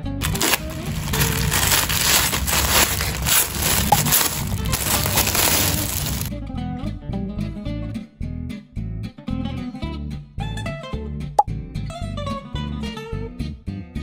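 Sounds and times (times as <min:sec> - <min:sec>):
foil and plastic crinkling: 0:00.0 - 0:06.3.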